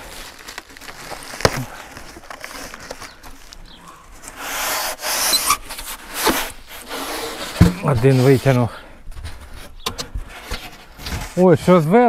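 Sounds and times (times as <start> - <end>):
plastic film crinkling and tearing: 0.0 - 3.6
foam board rubbing: 4.4 - 8.7
sharp scrape: 4.4 - 8.7.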